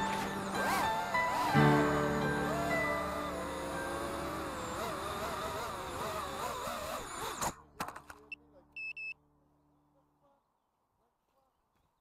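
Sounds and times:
background music: 0.0 - 5.2.

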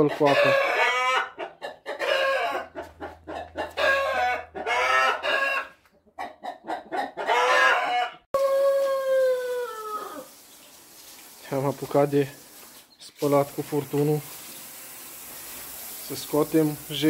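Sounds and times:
chickens clucking: 0.0 - 10.2
rooster crowing: 2.0 - 2.8, 3.4 - 5.8, 7.1 - 10.3.

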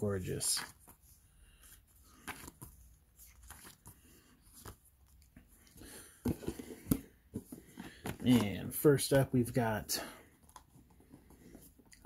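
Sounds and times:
paper pages rustling: 0.4 - 8.6.

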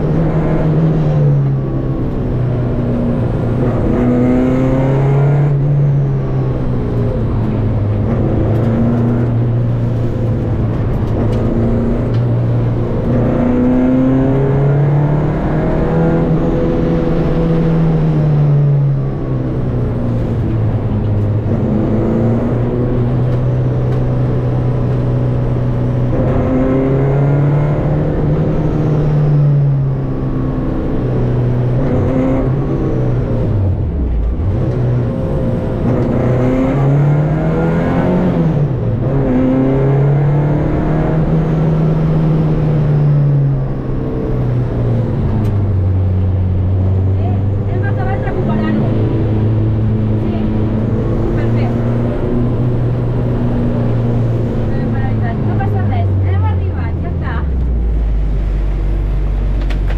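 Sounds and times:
rally car engine revving: 0.0 - 59.9.

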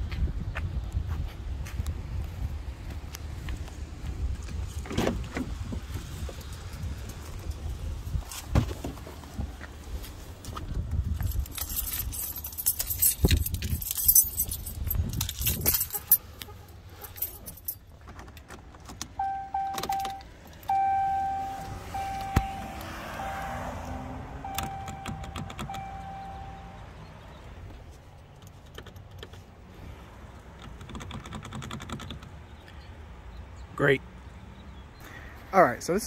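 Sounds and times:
keys jangling: 11.2 - 16.2, 17.0 - 17.9
electronic warning chime beeping: 19.2 - 26.9.

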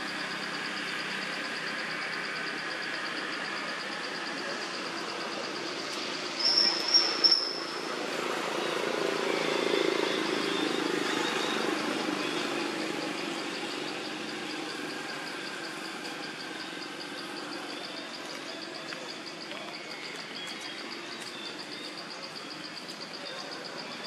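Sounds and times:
insect chirping: 0.0 - 24.0
short high squeaks: 6.4 - 7.8.

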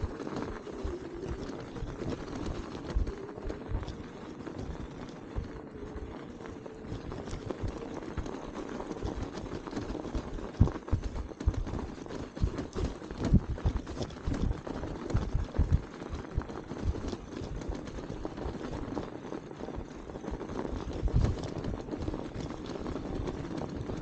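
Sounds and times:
tyres crunching through snow: 0.0 - 24.0
low thumps of bike jolting: 6.9 - 24.0.

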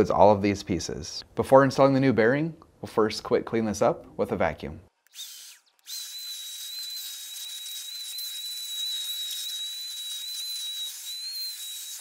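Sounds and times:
vacuum cleaner hiss and whistle: 5.2 - 12.0.

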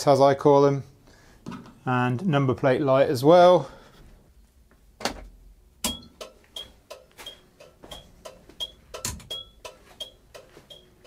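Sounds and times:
turn-signal flasher ticking: 5.8 - 11.0.

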